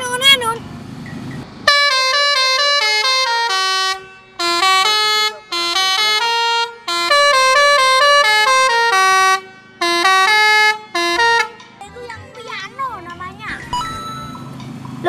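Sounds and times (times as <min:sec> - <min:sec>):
musical air horn playing a tune: 0:01.7 - 0:11.6.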